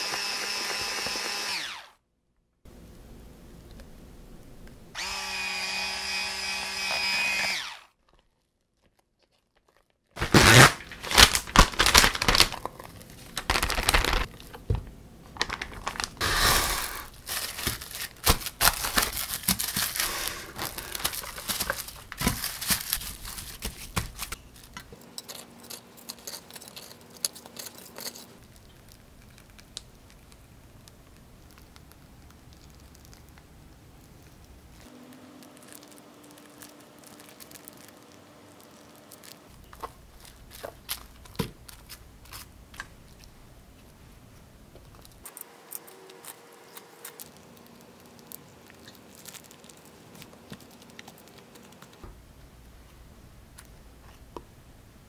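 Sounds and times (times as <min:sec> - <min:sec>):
electric hand mixer whirring: 0:00.0 - 0:01.9, 0:05.0 - 0:07.9
cling wrap crinkling: 0:08.0 - 0:14.7, 0:15.3 - 0:25.0, 0:26.0 - 0:43.4, 0:44.8 - 0:52.1.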